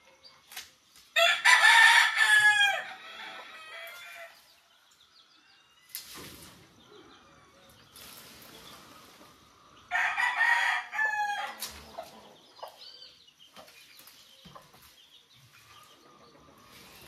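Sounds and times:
rooster crowing: 1.2 - 4.3, 9.9 - 11.6.

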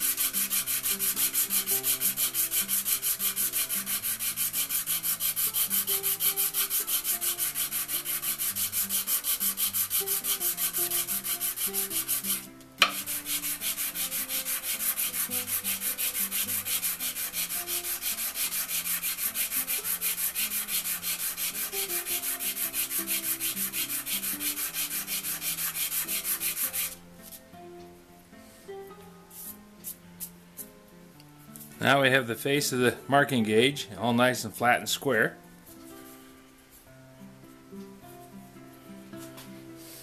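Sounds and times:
wood sanding strokes: 0.0 - 27.0.

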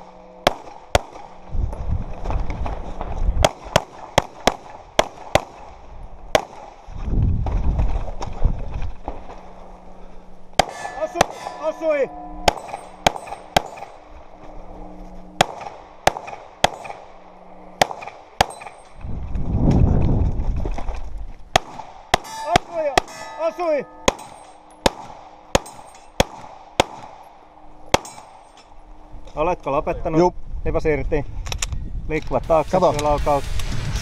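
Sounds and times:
ringing metallic tones: 0.0 - 2.0, 8.9 - 19.3, 22.1 - 30.2
handgun shots: 24.1 - 27.2.

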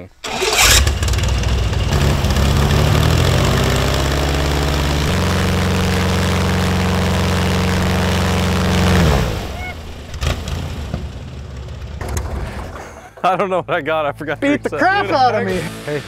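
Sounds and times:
airboat engine and propeller: 0.6 - 11.0.

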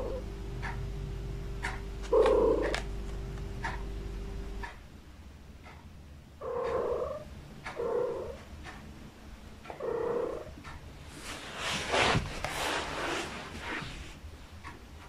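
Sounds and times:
cat calling: 2.0 - 2.8.

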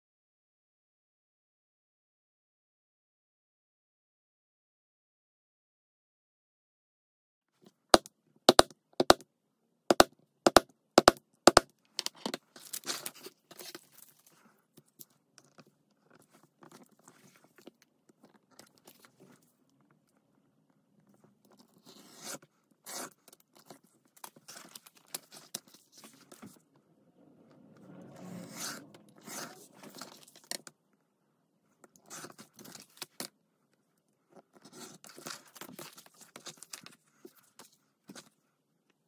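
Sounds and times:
craft knife cutting leather: 21.7 - 23.8
leather and plastic rustling: 23.3 - 26.6.

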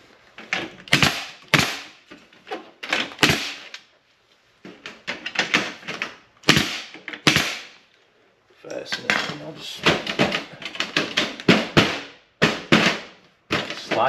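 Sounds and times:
pneumatic nail gun shots: 0.9 - 2.0, 3.0 - 3.8, 5.4 - 7.8, 10.0 - 13.8.

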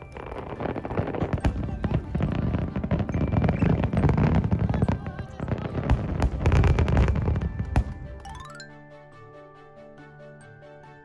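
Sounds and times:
fireworks bursting: 0.0 - 8.2.

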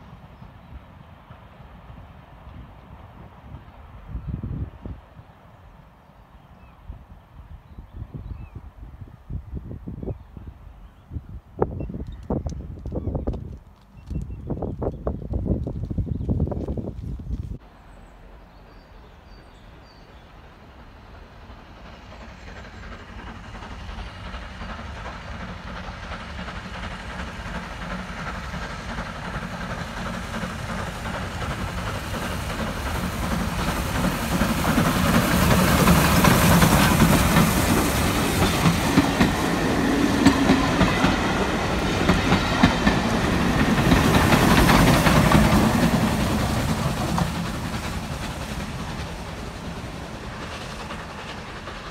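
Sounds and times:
steam locomotive passing: 0.0 - 14.2, 14.8 - 51.9
train wheels clicking over rail joints: 20.9 - 51.9.

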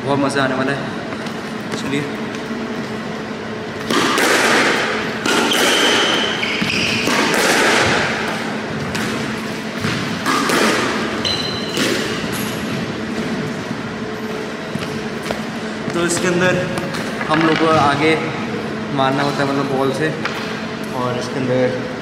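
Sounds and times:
squash ball hitting rackets and walls: 3.6 - 18.2
shoe squeaks: 5.4 - 7.3, 11.2 - 12.7.

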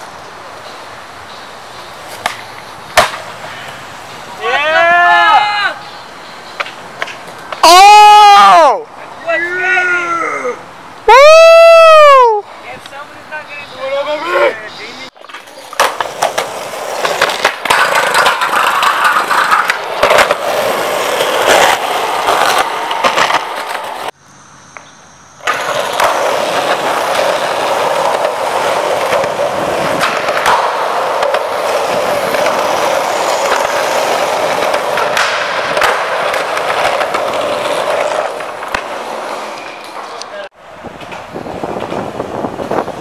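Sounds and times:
skateboard wheels rolling on concrete: 0.0 - 43.0
skateboard clacks and slaps: 2.1 - 3.4, 15.2 - 24.1, 25.4 - 42.8.

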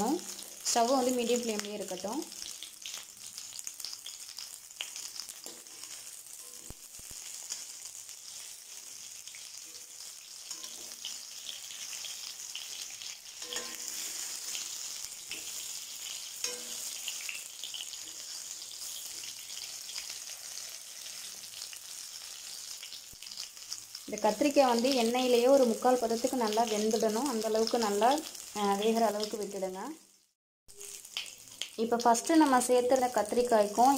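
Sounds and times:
vegetables sizzling in oil: 0.0 - 33.9
spoon scraping pan: 4.1 - 20.0.

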